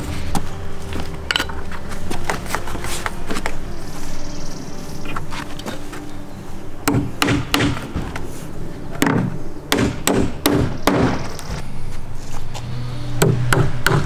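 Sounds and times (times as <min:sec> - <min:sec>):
hammer striking nails into wood: 0:06.8 - 0:08.1, 0:09.0 - 0:11.3, 0:13.2 - 0:14.0.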